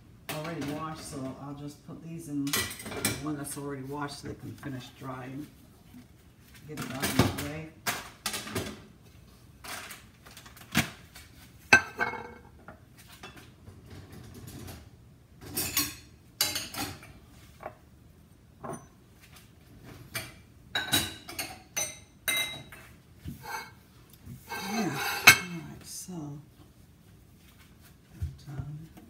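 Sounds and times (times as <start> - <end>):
dishes and cutlery clattering: 11.7 - 12.6, 13.2 - 17.2, 18.6 - 19.0, 20.1 - 23.8, 24.4 - 25.6.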